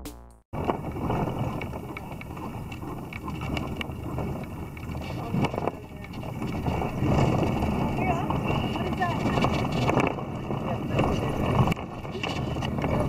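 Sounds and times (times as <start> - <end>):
wind buffeting microphone: 0.6 - 13.0.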